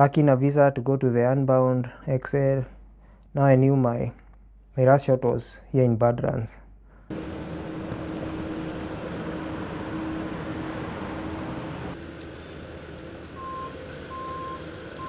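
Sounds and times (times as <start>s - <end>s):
city street traffic hum: 7.1s - 15.0s
vehicle reversing alarm beeping: 7.1s - 15.0s.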